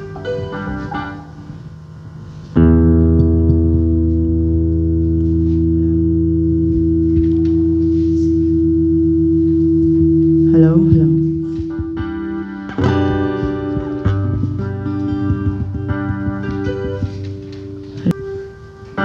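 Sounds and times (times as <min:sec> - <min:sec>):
live band holding chord: 0:02.6 - 0:19.0
wavering voice: 0:10.4 - 0:11.8.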